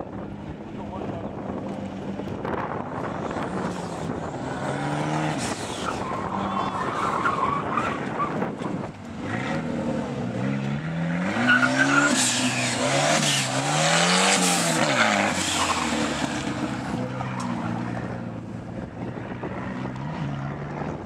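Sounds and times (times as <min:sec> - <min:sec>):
car engine revving hard: 0:03.3 - 0:06.4, 0:09.2 - 0:17.2.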